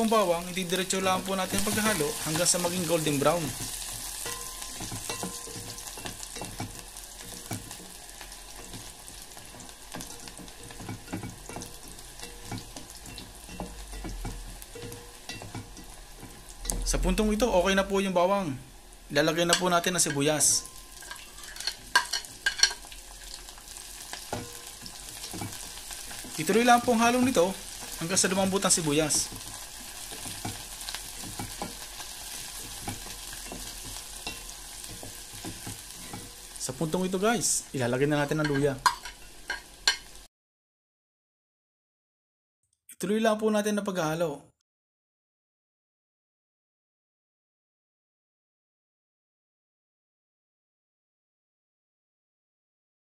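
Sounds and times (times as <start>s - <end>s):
garlic sizzling in oil: 0.0s - 40.3s
wooden spatula scraping a pot: 0.7s - 16.8s, 19.5s - 36.6s
spatula scraping a pot: 20.8s - 26.4s, 29.2s - 36.6s.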